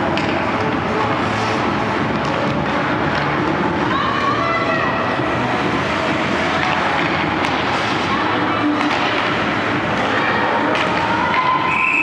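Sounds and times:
hockey sticks and puck clacking: 0:00.0 - 0:04.0, 0:05.5 - 0:12.0
skates scraping ice: 0:00.1 - 0:04.2, 0:05.1 - 0:11.8
referee's whistle blowing: 0:11.6 - 0:12.0.

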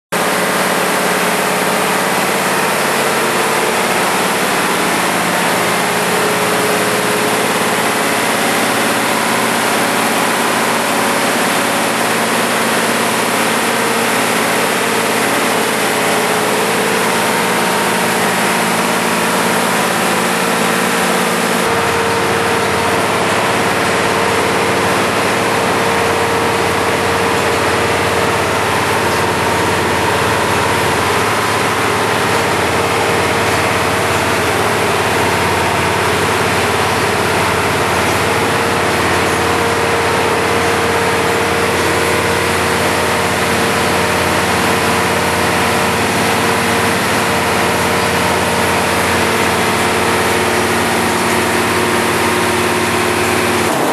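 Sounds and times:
engine idling: 0:00.2 - 0:53.9.

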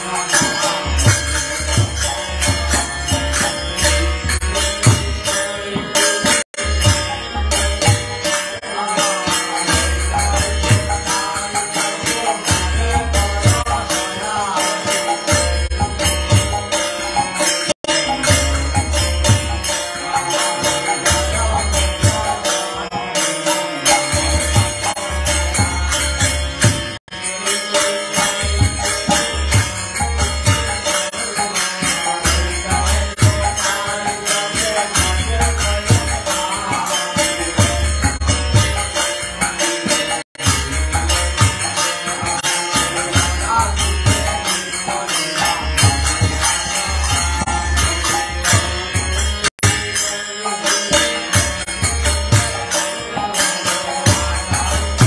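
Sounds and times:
man singing a chant: 0:00.0 - 0:16.7, 0:18.0 - 0:55.0
harmonium: 0:00.0 - 0:55.0
jingling percussion: 0:00.0 - 0:55.0.

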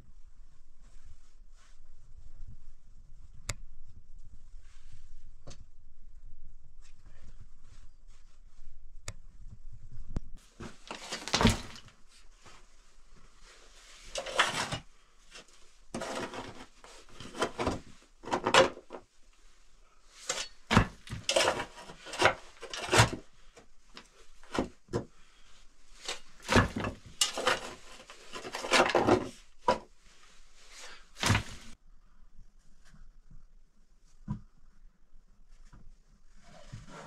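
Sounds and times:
stones and dirt scraped by hand: 0:14.0 - 0:18.8, 0:20.2 - 0:23.2, 0:26.0 - 0:29.3.

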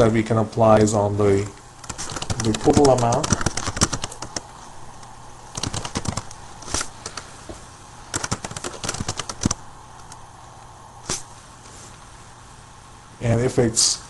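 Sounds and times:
computer keyboard and mouse clicks: 0:01.8 - 0:04.5, 0:05.5 - 0:07.2, 0:08.1 - 0:10.2.

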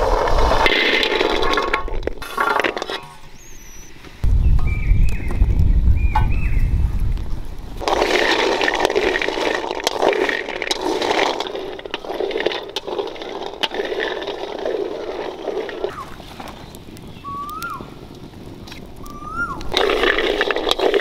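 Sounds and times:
seeds rattling in metal wok: 0:00.0 - 0:03.3, 0:07.8 - 0:15.9, 0:19.7 - 0:21.0
low rumble: 0:04.2 - 0:08.0.

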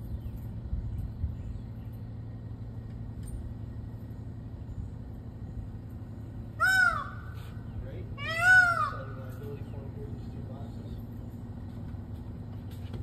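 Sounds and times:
steady low rumble: 0:00.0 - 0:13.0
peacock wailing call: 0:06.6 - 0:09.4.

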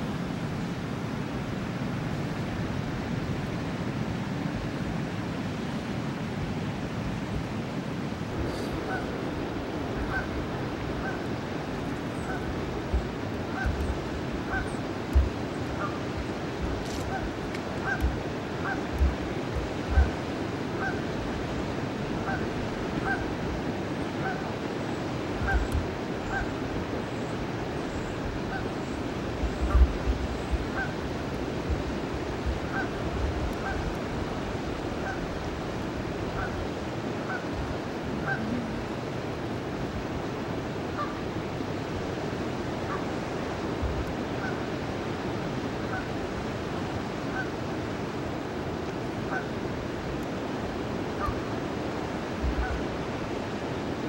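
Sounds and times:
river rushing: 0:00.0 - 0:54.0
geese honking: 0:08.5 - 0:09.3, 0:09.9 - 0:11.4, 0:12.0 - 0:16.2, 0:17.0 - 0:19.2, 0:20.8 - 0:21.1, 0:22.2 - 0:23.4, 0:32.6 - 0:33.0, 0:34.9 - 0:35.3, 0:37.2 - 0:38.9, 0:49.3 - 0:49.6
wind thumps on microphone: 0:12.2 - 0:20.2, 0:29.4 - 0:30.9, 0:31.6 - 0:33.9.

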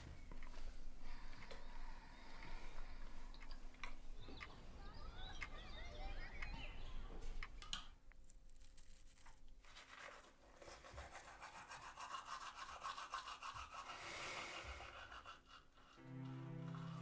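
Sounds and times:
toothbrush scrubbing teeth: 0:09.2 - 0:16.0.

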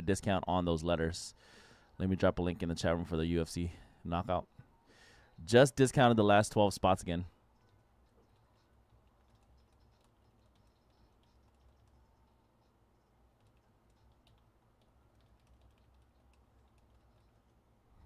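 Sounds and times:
low steady hum: 0:00.0 - 0:18.0
typing on computer keyboard: 0:07.6 - 0:17.6.

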